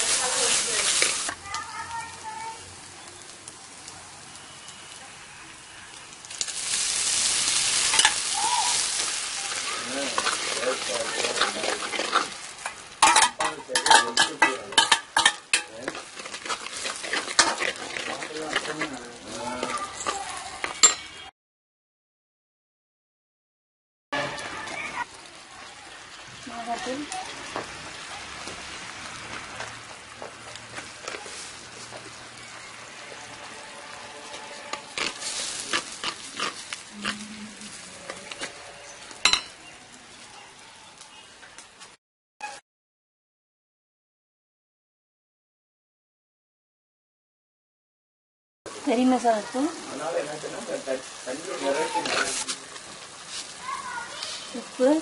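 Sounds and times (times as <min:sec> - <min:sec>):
tomato paste sizzling in oil: 0:00.0 - 0:21.2, 0:24.2 - 0:42.6, 0:48.7 - 0:55.0
steel spoon scraping and clinking: 0:07.9 - 0:08.2, 0:09.6 - 0:19.0, 0:19.6 - 0:21.2, 0:38.1 - 0:39.6, 0:51.8 - 0:52.5.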